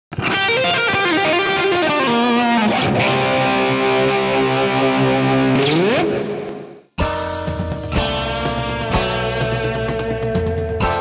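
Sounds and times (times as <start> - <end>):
distorted electric guitar solo: 0.1 - 7.1, 7.9 - 11.0.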